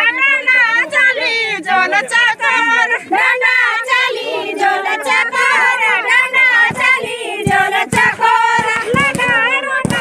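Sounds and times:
women singing folk song: 0:00.0 - 0:10.0
low thumps: 0:06.5 - 0:10.0.

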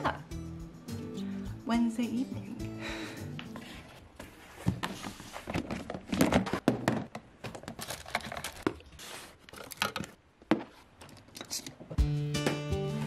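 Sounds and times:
rummaging in plastic box: 0:03.6 - 0:11.6.

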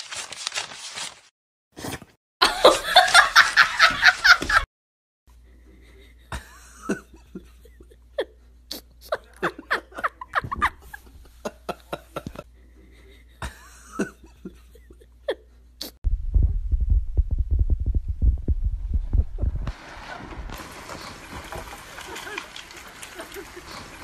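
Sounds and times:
loud low hum: 0:16.1 - 0:19.7.

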